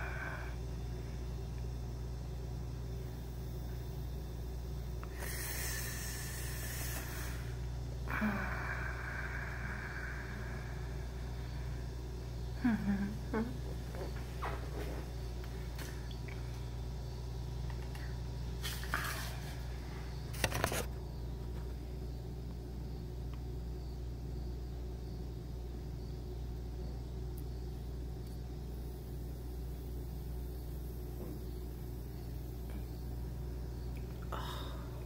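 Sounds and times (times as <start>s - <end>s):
low background hum: 0.0s - 35.0s.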